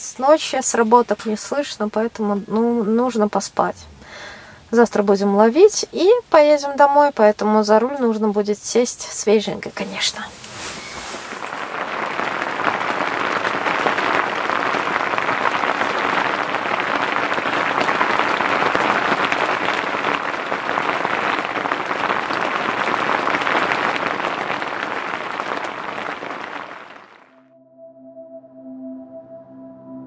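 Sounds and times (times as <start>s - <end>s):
rain falling on a tent: 9.8s - 27.3s.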